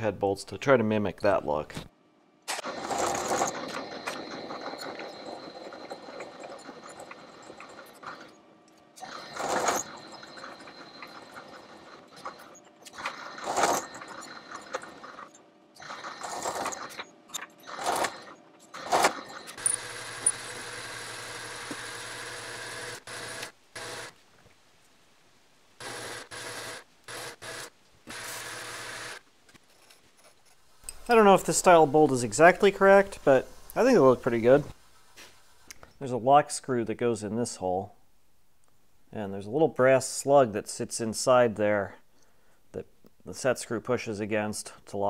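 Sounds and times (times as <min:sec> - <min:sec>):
milling machine cutting metal: 0:02.5 - 0:08.4, 0:09.0 - 0:24.1, 0:25.8 - 0:29.2
metal lathe humming and whining: 0:09.0 - 0:16.9, 0:18.9 - 0:24.0.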